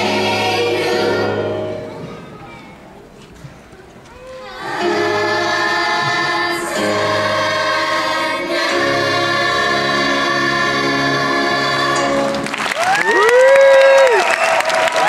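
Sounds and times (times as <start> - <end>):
children's choir singing: 0.0 - 2.7, 4.3 - 12.6.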